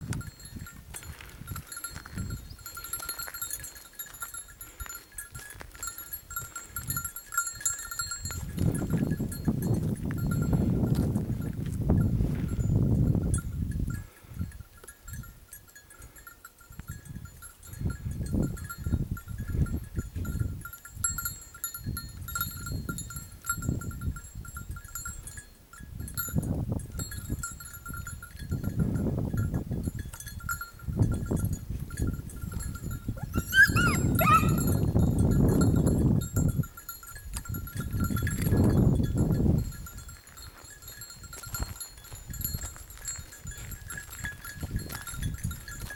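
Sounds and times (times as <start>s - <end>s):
small bells tinkling: 0.0s - 45.9s
wind gusts on microphone: 0.0s - 45.9s
high rising and falling call: 33.2s - 34.6s.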